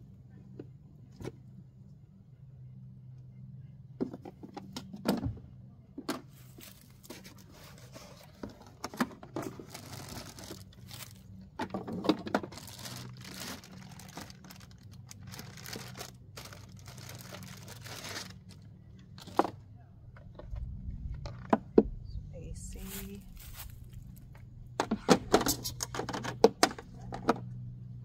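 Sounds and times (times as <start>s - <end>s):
plastic bags crinkling: 9.4s - 11.4s, 12.0s - 19.4s.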